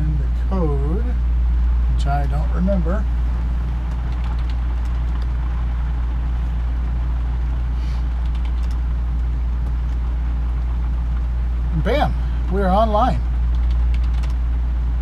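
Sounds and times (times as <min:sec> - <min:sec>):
steady low hum: 0:00.0 - 0:15.0
faint clicks: 0:08.2 - 0:10.7, 0:13.5 - 0:14.4.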